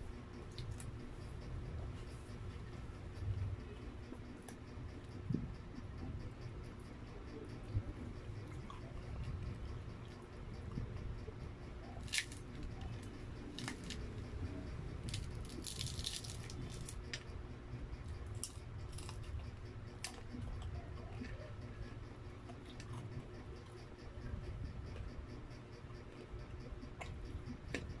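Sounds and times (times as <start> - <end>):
low steady hum: 0.0 - 28.0
fried chicken breading crackling: 15.0 - 17.0.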